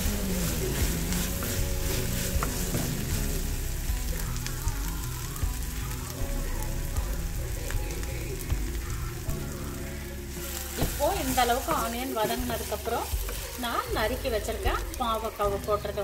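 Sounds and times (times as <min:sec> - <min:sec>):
wooden spatula scraping: 0:00.0 - 0:04.2, 0:10.3 - 0:13.8
onions sizzling in oil: 0:00.0 - 0:16.0.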